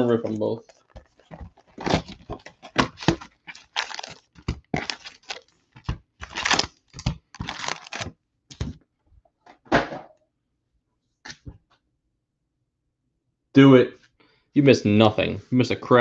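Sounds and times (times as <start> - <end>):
packs tearing and crinkling: 0.3 - 8.6.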